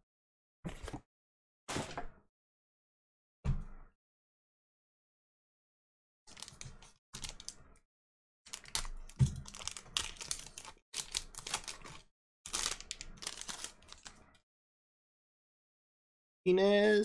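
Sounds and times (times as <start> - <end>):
foil wrapper crinkling and tearing: 6.3 - 7.6, 8.5 - 14.4.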